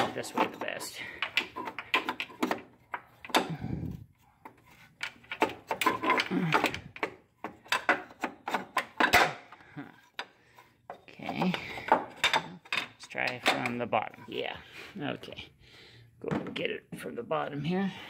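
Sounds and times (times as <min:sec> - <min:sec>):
metal clicks knocks and rattles: 0:00.0 - 0:03.6, 0:04.4 - 0:10.4.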